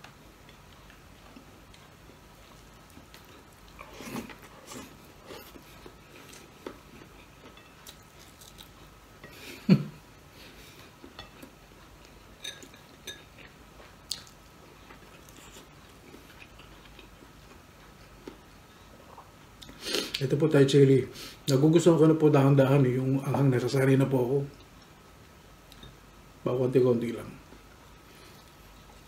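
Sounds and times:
chewing and mouth noises: 0.4s - 8.9s, 10.6s - 20.2s
light clicks of plate and glassware: 12.4s - 13.3s.

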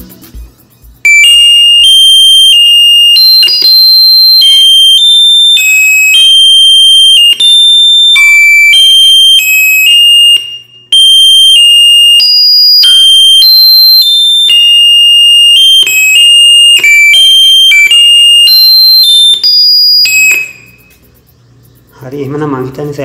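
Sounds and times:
high-pitched electronic tones: 0.0s - 22.0s.

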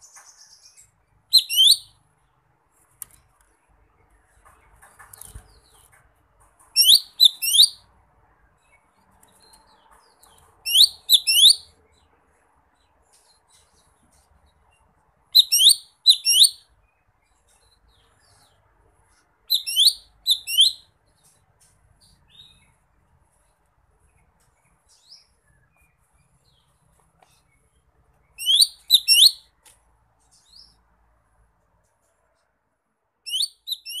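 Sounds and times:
faint bird chirps: 0.0s - 2.3s, 6.7s - 21.4s, 22.0s - 29.6s, 33.2s - 34.0s
bird whistled calls: 1.4s - 1.9s, 6.8s - 7.8s, 10.7s - 11.7s, 15.4s - 16.6s, 19.5s - 20.8s, 28.4s - 29.4s, 33.3s - 34.0s.

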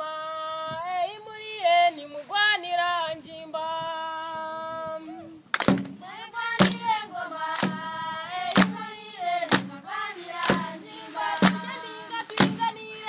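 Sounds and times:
body-percussion beat: 5.6s - 12.8s
children singing in harmony: 6.0s - 13.0s.

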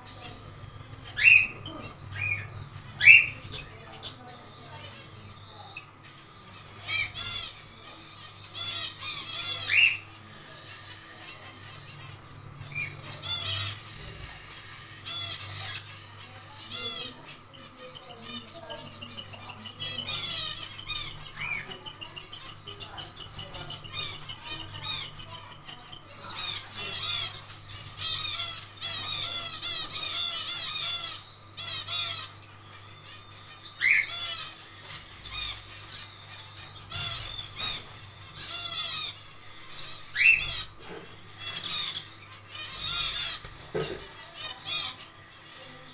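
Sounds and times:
finches calling and chattering: 0.0s - 45.9s
steady low hum: 0.0s - 45.9s.

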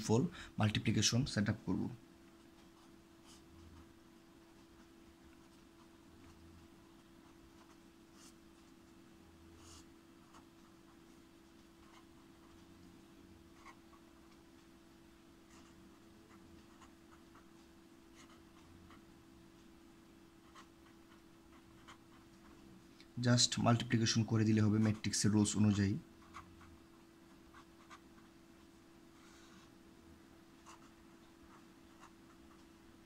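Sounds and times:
steady low hum: 0.0s - 33.0s
pen scratching on paper: 13.6s - 14.0s, 18.2s - 19.0s, 20.4s - 22.3s, 24.8s - 26.8s, 27.5s - 28.3s, 30.6s - 32.6s.

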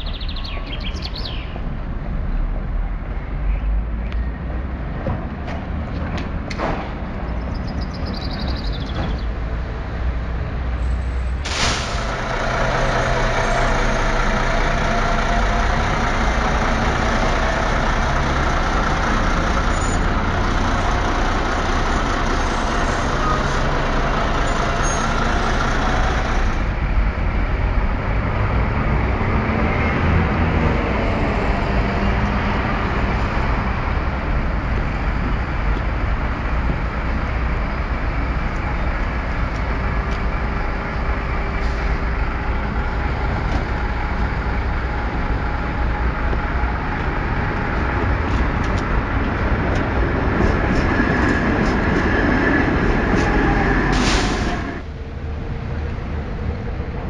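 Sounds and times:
bus engine running close by: 0.0s - 57.0s
street traffic of buses and trams: 0.0s - 57.0s.

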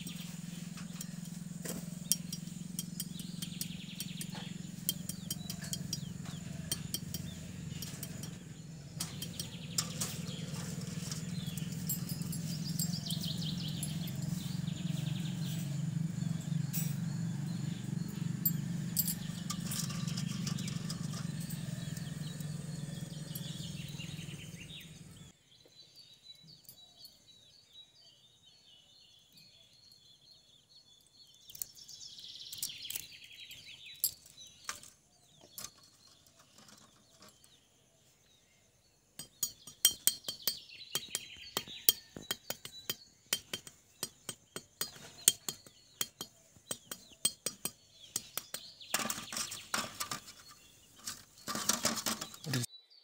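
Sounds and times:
birds chirping faintly: 0.0s - 53.0s.

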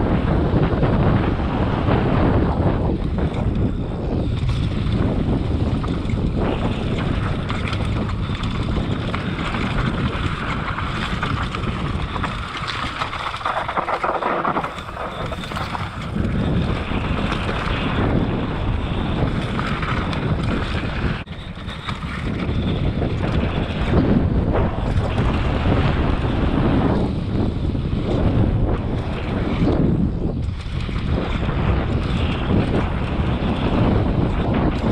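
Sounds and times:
wind buffeting microphone: 0.0s - 34.9s
bike knocks and rattles: 3.2s - 18.1s
tyres rumbling on dirt: 4.5s - 27.2s.

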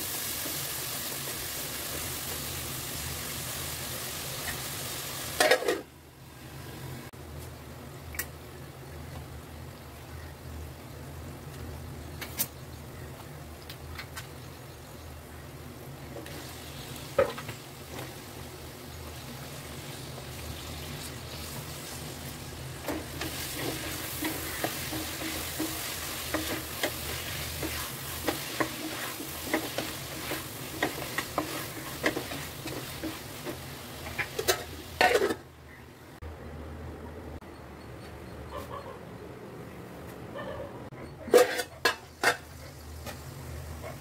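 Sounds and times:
food sizzling in a pot: 0.0s - 7.0s, 15.9s - 35.5s, 41.4s - 43.9s
spatula scraping a pot: 23.2s - 35.4s, 41.3s - 42.4s.

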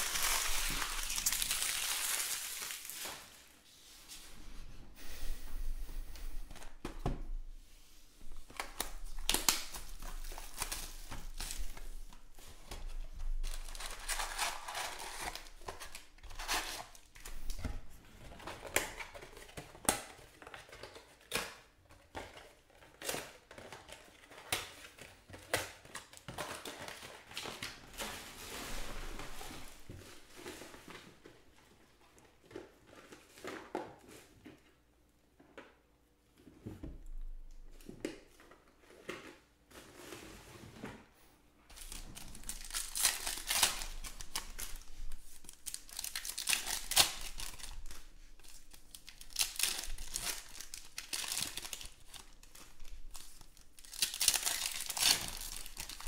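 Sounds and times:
pack wrappers crinkling: 0.0s - 3.5s, 8.5s - 17.6s, 41.7s - 56.0s.

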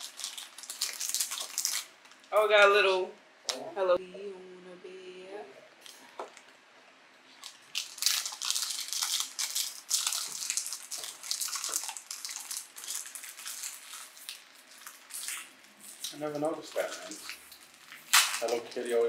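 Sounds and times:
foil wrapper crinkling: 0.0s - 2.3s, 7.4s - 19.0s.

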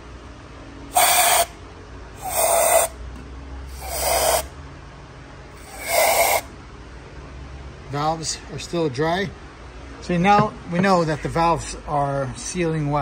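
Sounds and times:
aerosol spray hissing: 0.9s - 1.5s, 2.2s - 2.9s, 3.7s - 4.5s, 5.6s - 6.5s.

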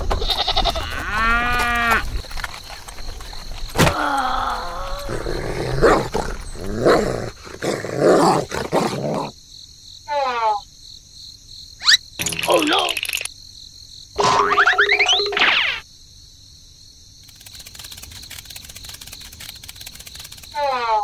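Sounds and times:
dog barking and growling: 5.1s - 9.4s.

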